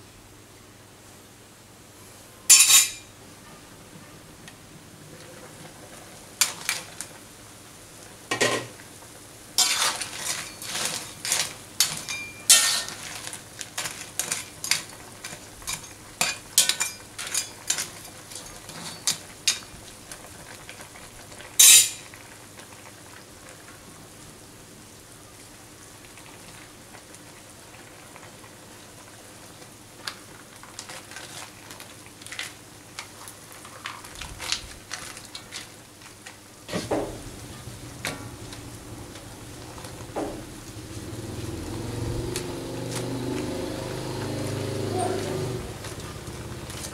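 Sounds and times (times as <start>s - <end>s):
low sizzle of simmering pan: 0.0s - 46.9s
metal spatula scraping a wok: 2.5s - 3.0s, 9.6s - 13.2s.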